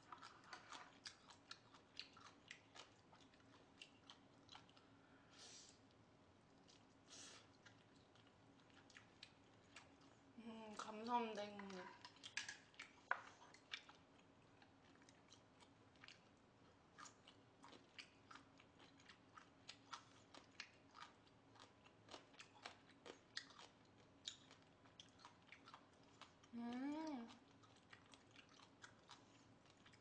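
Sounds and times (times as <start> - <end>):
person humming: 26.6 - 27.3.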